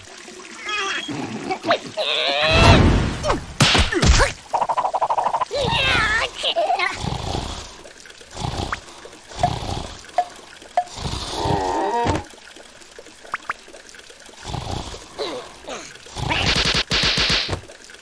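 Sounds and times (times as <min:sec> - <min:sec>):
cartoon character grunts and groans: 0:00.6 - 0:03.4, 0:05.5 - 0:07.2, 0:15.2 - 0:16.6.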